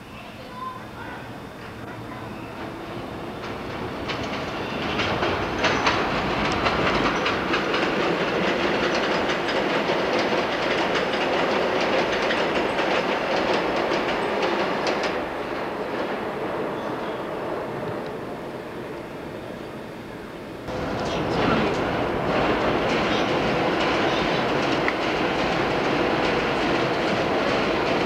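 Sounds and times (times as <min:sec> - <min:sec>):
subway train wheels clattering: 0:00.0 - 0:28.0.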